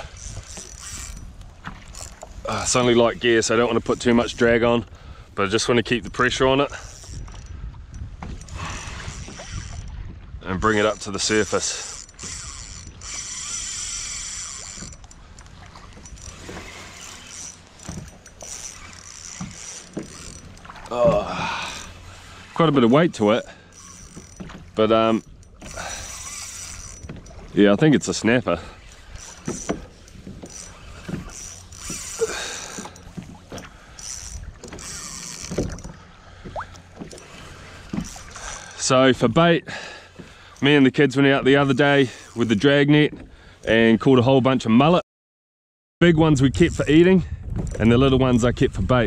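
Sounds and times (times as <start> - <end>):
fishing reel buzzing: 0.0 - 4.4, 6.3 - 10.0, 10.7 - 38.9, 41.6 - 42.6, 46.5 - 47.0
water lapping: 0.0 - 43.7.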